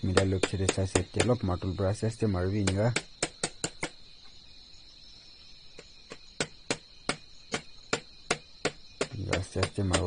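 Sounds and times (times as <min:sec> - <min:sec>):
tools clicking and tapping on radiator: 0:00.0 - 0:01.6, 0:02.5 - 0:04.0, 0:06.1 - 0:10.0
high-pitched insect trill: 0:00.0 - 0:10.0.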